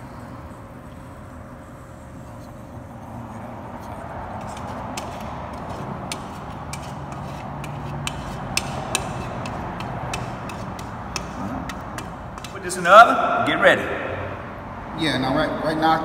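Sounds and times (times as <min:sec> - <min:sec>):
low background hum: 0:00.0 - 0:16.0
whisk scraping metal bowl: 0:01.7 - 0:12.7.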